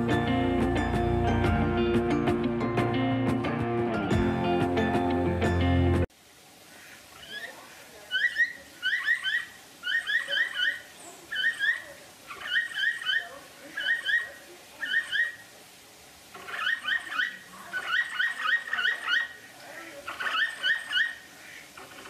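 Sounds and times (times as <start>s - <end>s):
capybara chirping: 8.1s - 15.4s, 16.4s - 19.4s, 20.0s - 22.0s.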